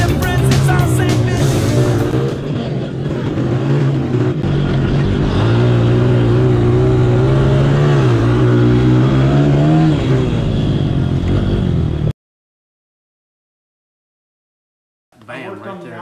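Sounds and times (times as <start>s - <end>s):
pit bike engine revving high: 0.0s - 12.1s.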